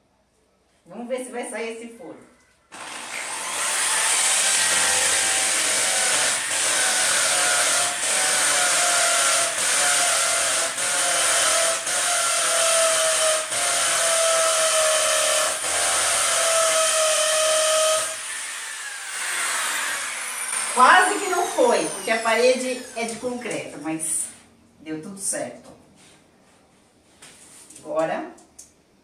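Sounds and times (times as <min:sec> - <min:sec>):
impact drill boring into concrete: 0:02.7 - 0:23.4.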